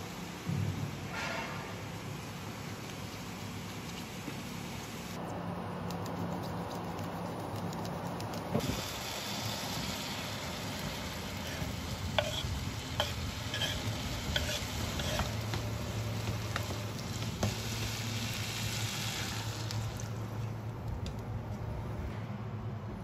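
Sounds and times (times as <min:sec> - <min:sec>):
vegetables sizzling in a frying pan: 0:08.6 - 0:20.2.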